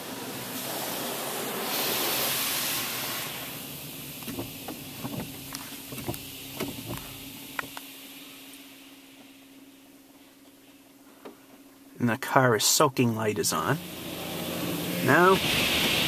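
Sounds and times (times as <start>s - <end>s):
car wash water spray hissing: 0.0s - 11.4s, 12.2s - 16.0s
steady low hum: 0.0s - 16.0s
water drops ticking on car: 3.7s - 7.9s.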